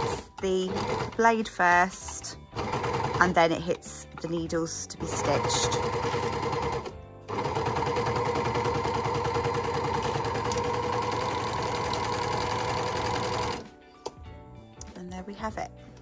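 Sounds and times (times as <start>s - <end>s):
overlocker sewing machine running: 0.0s - 1.2s, 2.6s - 3.2s, 5.2s - 13.6s.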